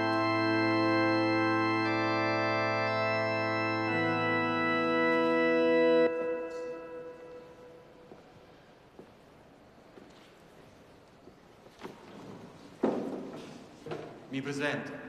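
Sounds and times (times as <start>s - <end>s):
organ playing sustained chords: 0.0s - 8.8s.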